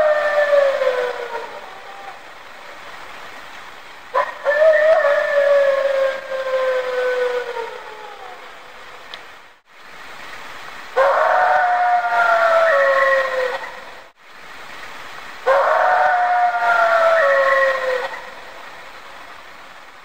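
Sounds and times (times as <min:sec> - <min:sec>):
long falling howls: 0:00.0 - 0:02.7, 0:04.1 - 0:08.8, 0:11.0 - 0:14.1, 0:15.4 - 0:18.8
faint steady hiss: 0:00.0 - 0:20.0.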